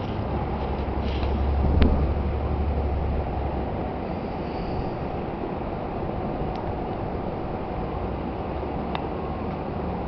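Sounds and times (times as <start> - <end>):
deep rumble: 0.0 - 9.0
rushing hiss: 4.0 - 5.4.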